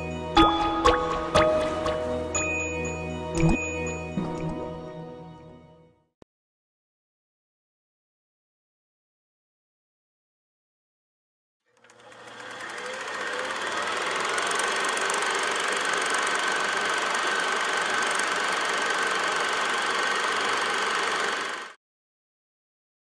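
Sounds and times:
film projector clattering: 11.7 - 21.8.

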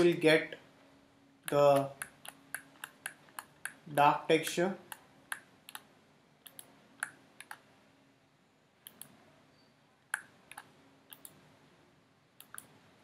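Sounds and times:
computer mouse clicking: 1.5 - 3.8, 4.9 - 7.6, 8.8 - 9.2, 10.1 - 11.4, 12.4 - 12.7.

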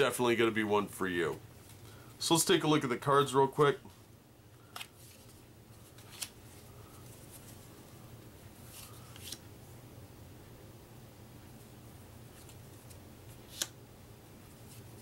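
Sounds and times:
steady low hum: 0.0 - 15.0
light clicks of paper card: 12.4 - 13.8.

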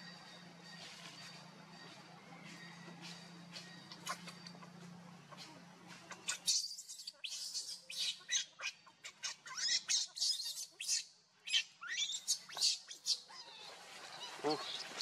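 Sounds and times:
infant monkey screaming: 6.1 - 14.8.

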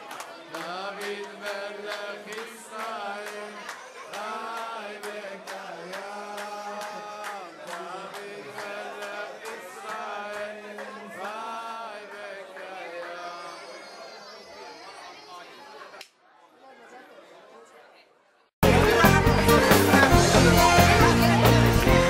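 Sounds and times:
rhythmic hand claps: 0.0 - 13.2, 18.6 - 22.0
men singing together: 0.6 - 13.4, 18.6 - 22.0.

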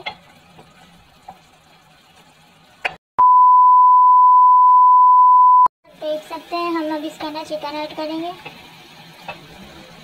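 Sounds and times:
steady test-tone beep: 3.2 - 5.7.

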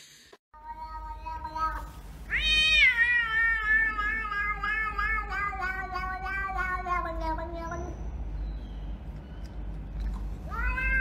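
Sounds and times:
cat meowing: 0.6 - 8.0, 10.5 - 11.0.

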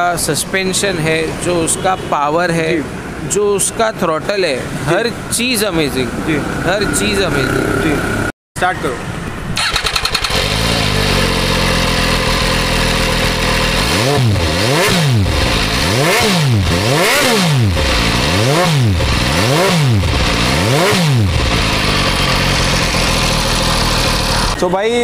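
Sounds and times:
motorcycle engine revving and idling: 5.5 - 8.3, 9.5 - 24.7.

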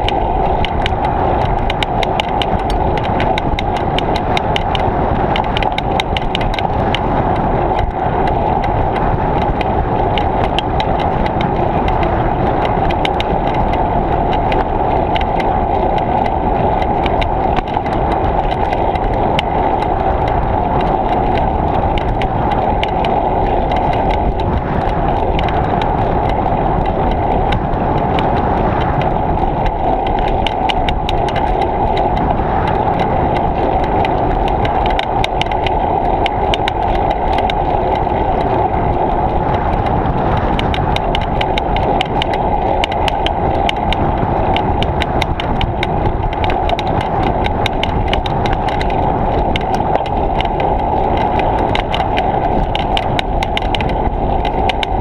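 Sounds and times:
bicycle clicks and rattles: 0.0 - 55.0
road rumble: 0.0 - 55.0
wind rushing: 0.0 - 55.0.

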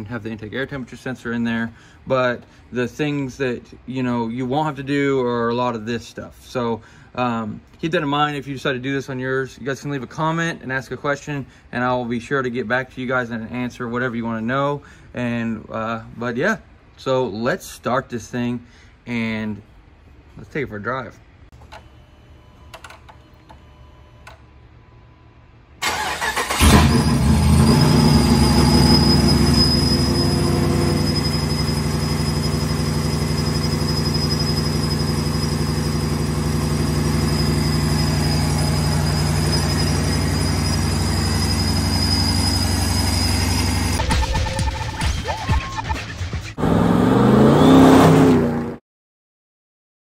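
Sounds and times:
starter motor cranking: 25.8 - 28.1
car engine idling: 25.8 - 44.0
supercharger whine: 25.9 - 45.1.

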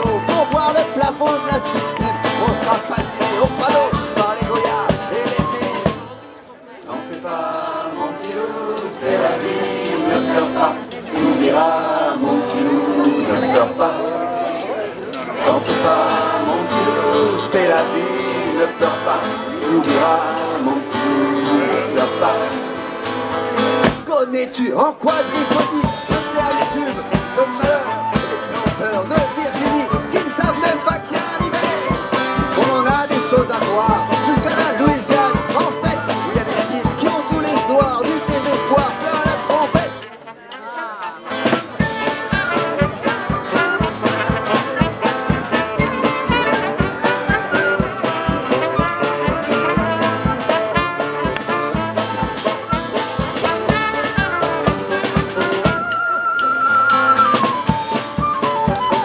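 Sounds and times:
flutes: 0.0 - 7.8, 25.0 - 59.0
acoustic guitars: 0.0 - 59.0
light drums: 25.1 - 59.0
saxophones: 39.0 - 59.0.

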